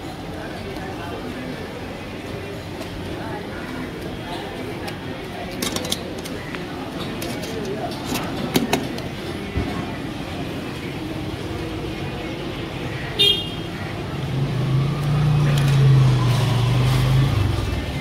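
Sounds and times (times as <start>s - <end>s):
street traffic noise: 0.0s - 18.0s
vehicle horn toot: 13.2s - 13.6s
passing vehicle engine drone: 14.1s - 18.0s.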